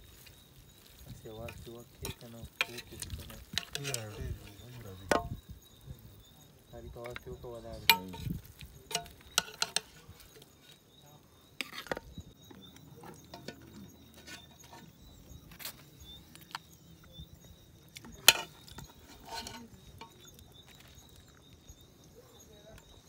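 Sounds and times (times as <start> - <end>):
spoon clinking and scraping in pot: 0.1 - 5.4, 7.0 - 10.8, 11.6 - 16.8, 17.9 - 20.6.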